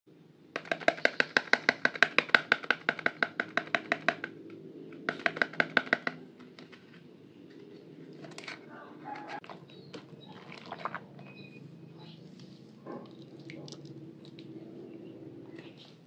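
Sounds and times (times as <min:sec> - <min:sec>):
fingers tapping on cardboard box: 0:00.6 - 0:06.8.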